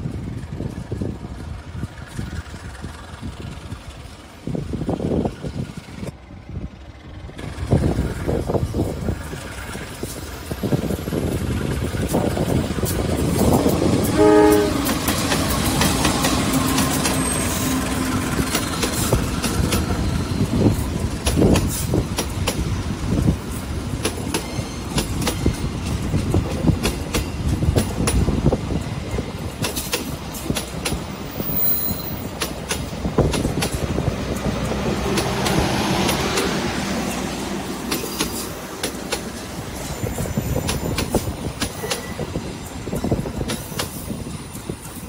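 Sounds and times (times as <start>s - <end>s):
locomotive passing: 0.0s - 45.0s
train wheels clattering over joints: 7.3s - 45.0s
train horn blast: 14.0s - 15.1s.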